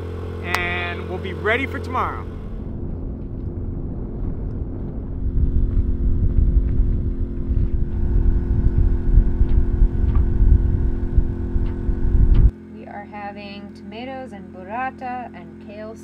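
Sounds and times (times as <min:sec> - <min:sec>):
outboard motor running: 0:00.0 - 0:16.0
wind buffeting microphone: 0:01.9 - 0:12.5.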